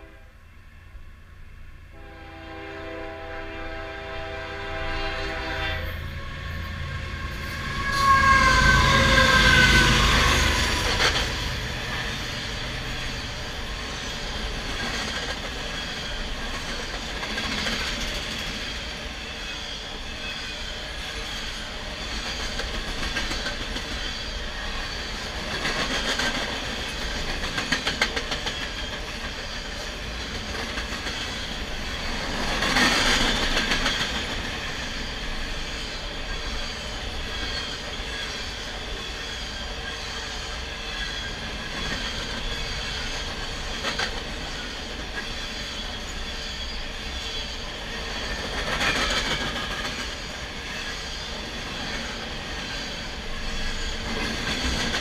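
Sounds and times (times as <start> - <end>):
train wheels rumbling on rail: 1.2 - 55.0
wheels clickety-clacking over joints: 10.8 - 18.7, 22.2 - 24.1, 25.0 - 34.7, 41.7 - 45.3, 48.2 - 50.3, 53.6 - 55.0.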